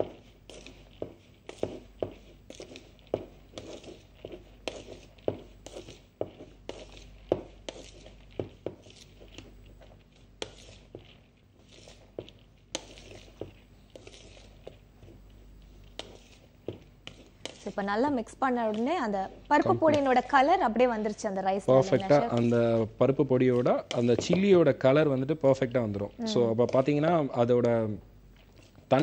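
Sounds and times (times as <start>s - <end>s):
rice swishing: 0.0s - 17.9s.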